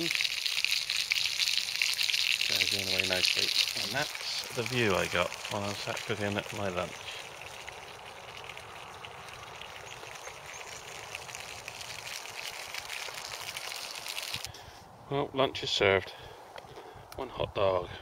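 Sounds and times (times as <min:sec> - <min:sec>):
sausages sizzling in a pan: 0:00.0 - 0:08.4.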